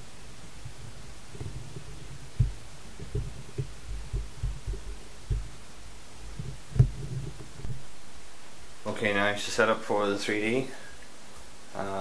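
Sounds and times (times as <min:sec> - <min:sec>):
steady low hum: 0:00.0 - 0:12.0
low thumps: 0:00.2 - 0:08.0.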